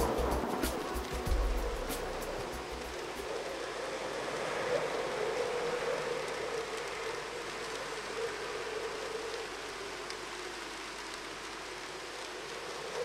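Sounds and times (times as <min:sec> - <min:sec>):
rushing outdoor background noise: 0:00.0 - 0:13.0.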